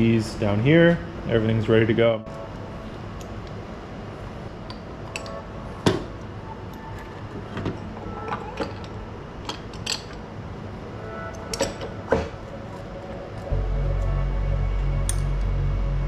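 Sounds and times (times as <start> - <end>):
faint background music: 0.0 - 16.0
metal parts clinking and knocking: 7.4 - 10.3.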